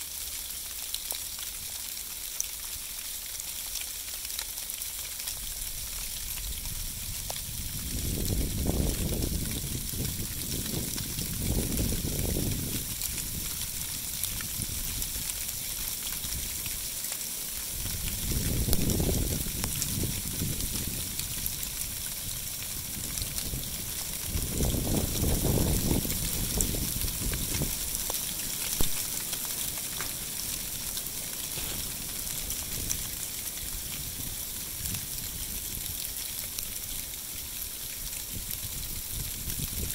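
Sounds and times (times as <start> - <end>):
sleet pattering on leaves: 0.0 - 39.9
sleet hissing on leaves: 24.8 - 38.0.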